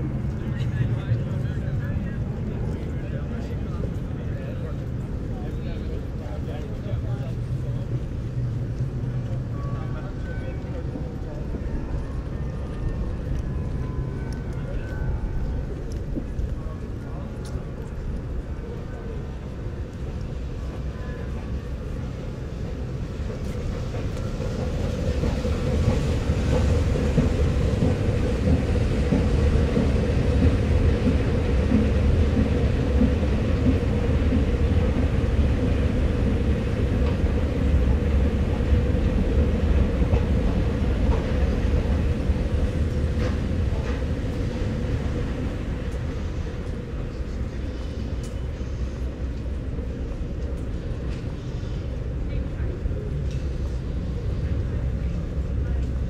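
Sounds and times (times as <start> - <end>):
train passing rumble: 0.0 - 56.0.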